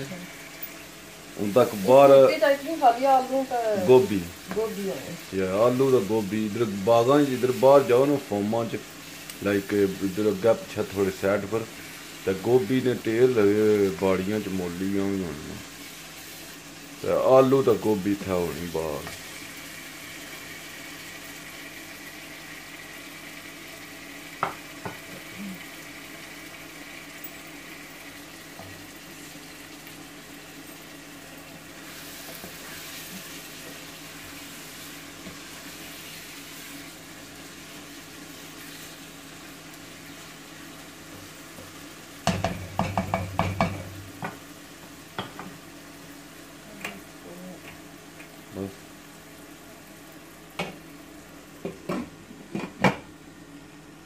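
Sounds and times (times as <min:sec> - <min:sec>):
curry sizzling in a pot: 0:00.0 - 0:54.0
wooden spoon knocking on pot: 0:42.2 - 0:44.4.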